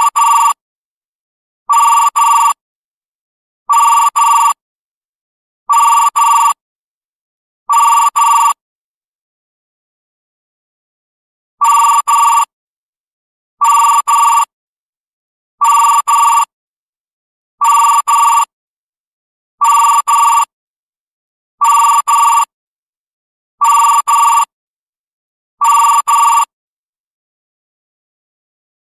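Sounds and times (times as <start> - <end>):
desk phone electronic ringtone: 0.0 - 0.6, 1.7 - 2.6, 3.7 - 4.6, 5.7 - 6.6, 7.7 - 8.6, 11.6 - 12.5, 13.6 - 14.5, 15.6 - 16.5, 17.6 - 18.5, 19.6 - 20.5, 21.6 - 22.5, 23.6 - 24.5, 25.6 - 26.6.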